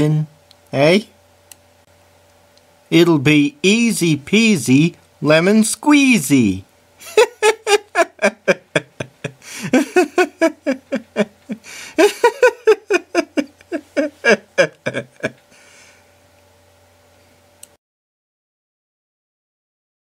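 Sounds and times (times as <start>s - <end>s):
person laughing: 7.0s - 15.8s.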